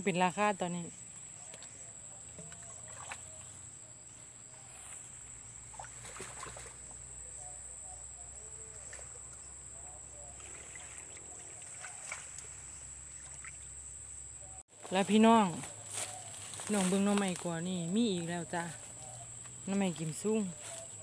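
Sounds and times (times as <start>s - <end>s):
hands splashing in muddy water: 5.7s - 7.0s, 10.4s - 13.6s.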